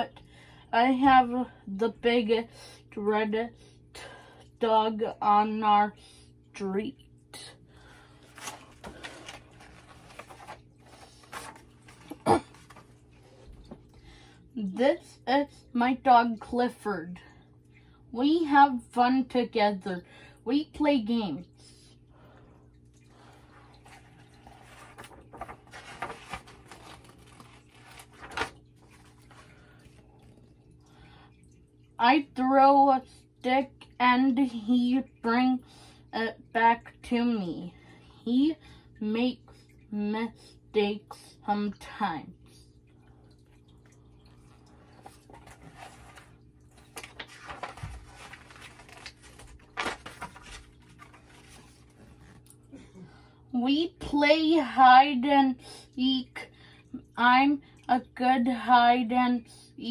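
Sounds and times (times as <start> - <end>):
steady low hum: 0.0 - 53.6
paper pages rustling: 8.2 - 13.8, 23.6 - 30.0, 44.8 - 52.6.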